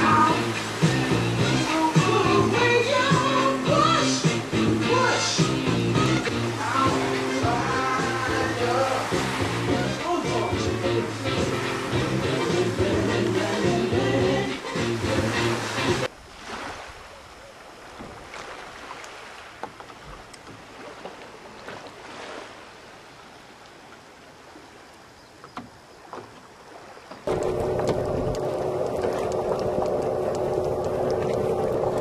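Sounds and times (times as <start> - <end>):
outboard motor droning: 0.0 - 16.1, 25.4 - 32.0
sea and wind noise: 0.0 - 32.0.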